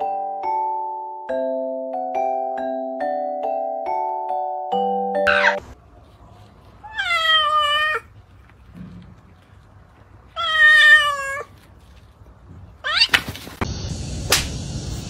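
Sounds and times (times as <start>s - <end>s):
young cat meowing: 5.3s - 5.6s, 6.8s - 8.1s, 10.4s - 11.5s, 12.8s - 13.2s.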